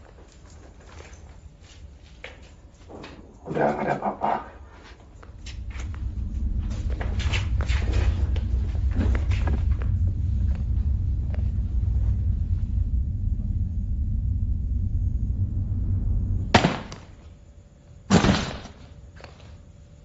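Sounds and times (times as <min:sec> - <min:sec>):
low rumbling drone: 0:01.1 - 0:20.0
loud stinger hits: 0:05.3 - 0:18.6.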